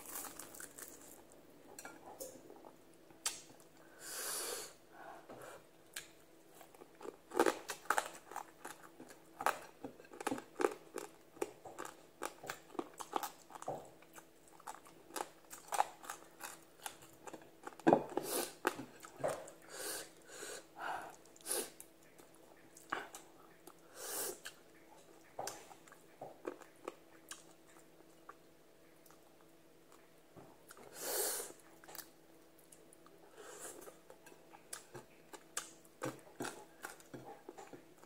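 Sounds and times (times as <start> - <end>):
chewing food: 5.9 - 17.9, 24.4 - 30.9, 31.6 - 38.0.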